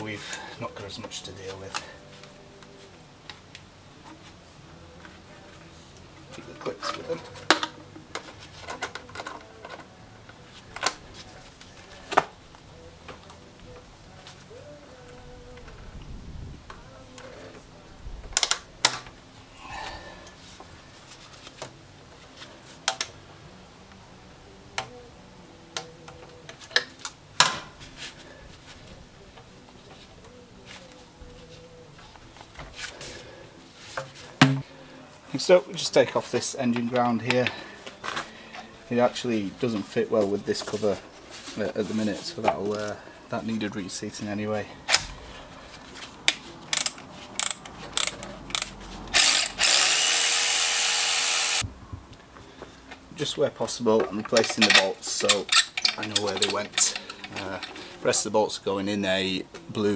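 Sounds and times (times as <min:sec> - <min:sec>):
hose clips clicking and knocking: 0:18.4 - 0:19.1, 0:46.3 - 0:49.3, 0:53.9 - 0:57.8
ratchet clicks: 0:46.7 - 0:51.6
cordless ratchet motor running: 0:47.4 - 0:51.6.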